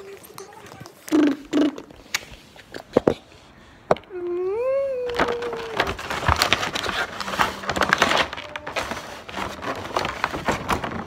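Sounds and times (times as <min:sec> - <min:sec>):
paper bag rustling: 0:05.0 - 0:11.0.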